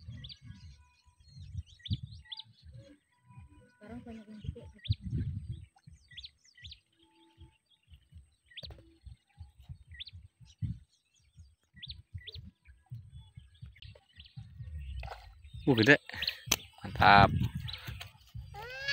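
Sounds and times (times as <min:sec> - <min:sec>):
small bird chirping: 0:00.0 - 0:18.9
thumps on microphone: 0:07.9 - 0:10.8, 0:16.5 - 0:18.6.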